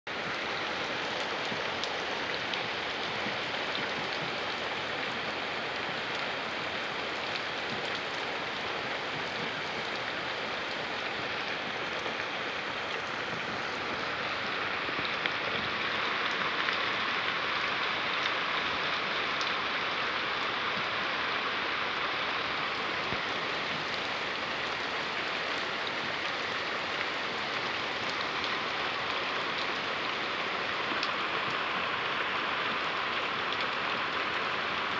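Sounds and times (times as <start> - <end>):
torrential rain: 0.1 - 34.9.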